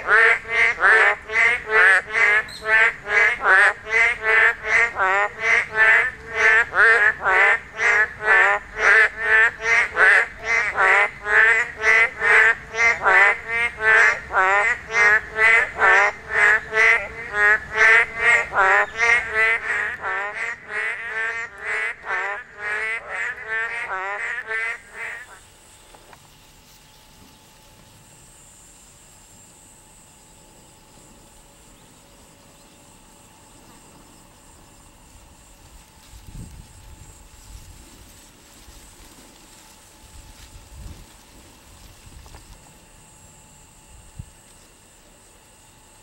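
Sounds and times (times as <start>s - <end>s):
frog chorus: 0.0s - 26.3s.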